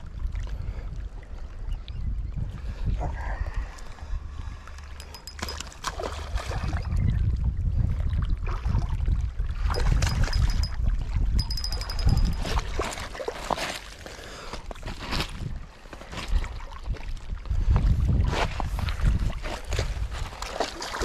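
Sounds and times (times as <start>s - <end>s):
water lapping around a boat: 0.0s - 21.0s.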